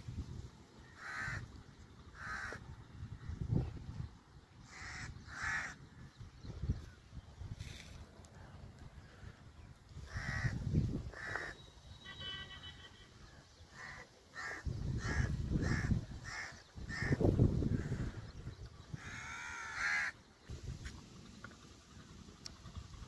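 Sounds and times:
crow cawing: 0.8 - 1.5, 2.2 - 2.6, 4.6 - 5.8, 10.1 - 11.6, 13.8 - 18.2, 19.0 - 20.2.

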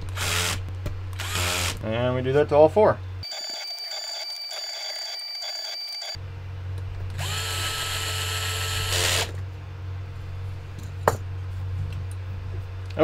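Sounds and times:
electric screwdriver whirring: 0.2 - 0.6, 1.2 - 1.8, 7.2 - 9.3.

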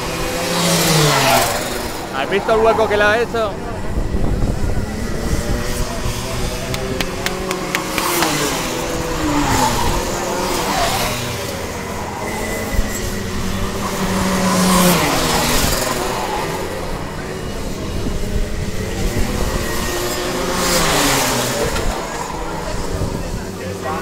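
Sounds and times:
kart engines racing past: 0.0 - 24.0
sharp clicks: 6.7 - 8.6.

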